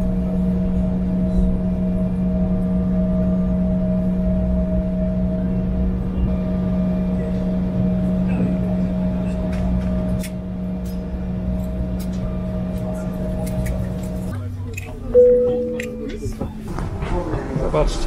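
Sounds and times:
jet cabin engine drone: 0:00.0 - 0:17.8.

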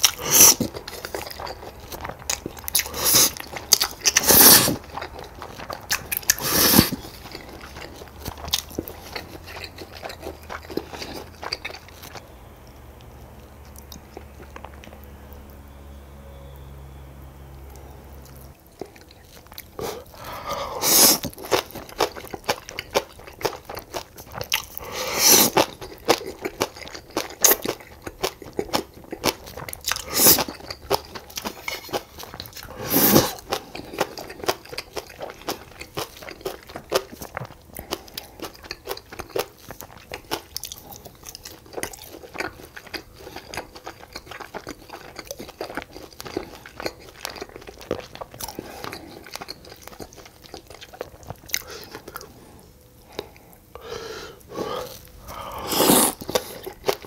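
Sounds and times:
crunching and chewing food: 0:00.0 - 0:57.0.

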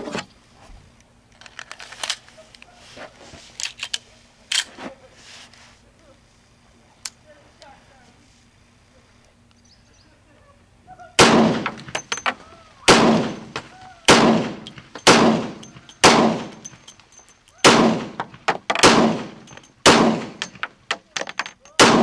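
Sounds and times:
pistol gunshots: 0:11.2 - 0:12.3, 0:12.9 - 0:16.6, 0:17.6 - 0:20.7, 0:21.8 - 0:22.0.

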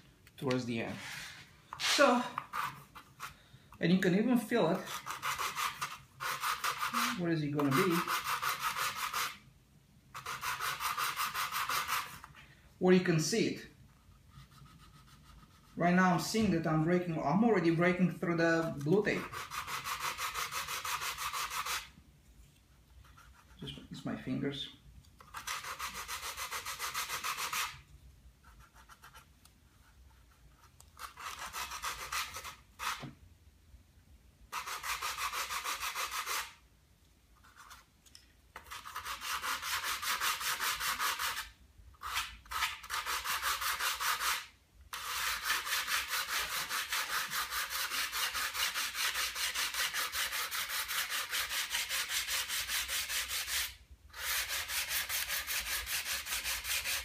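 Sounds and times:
sandpaper rubbing on wood: 0:00.9 - 0:03.3, 0:04.8 - 0:09.4, 0:10.2 - 0:12.3, 0:18.6 - 0:21.9, 0:25.3 - 0:27.8, 0:31.0 - 0:33.0, 0:34.5 - 0:36.6, 0:38.6 - 0:57.0.

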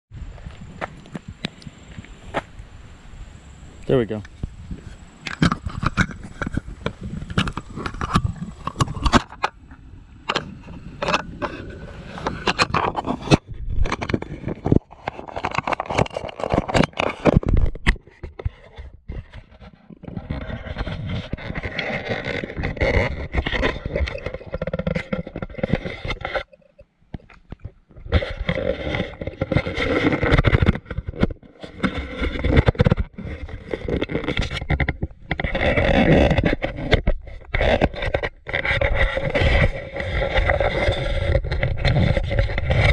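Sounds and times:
footsteps on dirt trail: 0:00.2 - 0:02.7.

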